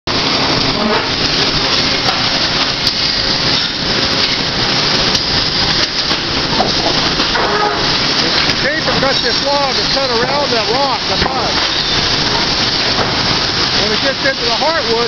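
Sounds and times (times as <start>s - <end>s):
sawmill machinery din: 0.1s - 15.0s.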